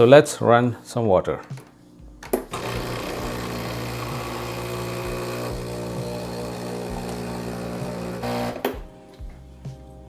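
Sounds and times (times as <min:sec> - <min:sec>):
espresso machine pump humming: 0:02.5 - 0:08.8.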